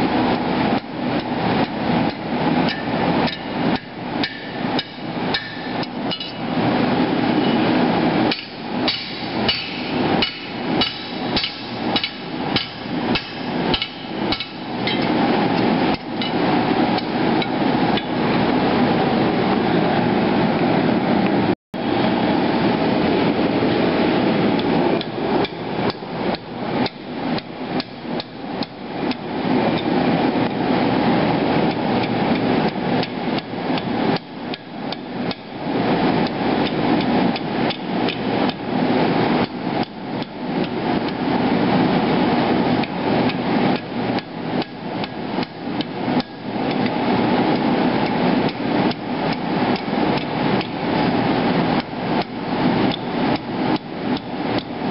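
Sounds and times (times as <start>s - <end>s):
gas forge roaring: 0.0s - 54.9s
hammer striking hot steel on anvil: 2.1s - 6.4s, 8.3s - 15.2s.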